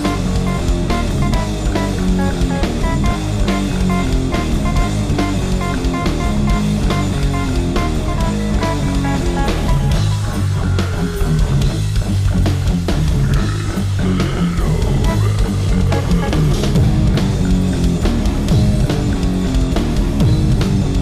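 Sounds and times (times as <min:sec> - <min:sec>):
bass guitar: 0:00.0 - 0:21.0
drum kit: 0:00.0 - 0:21.0
electric guitars: 0:00.0 - 0:21.0.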